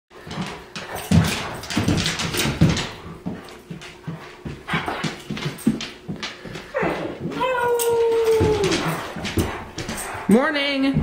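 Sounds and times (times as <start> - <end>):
dog whimpering and huffing: 6.7 - 10.3.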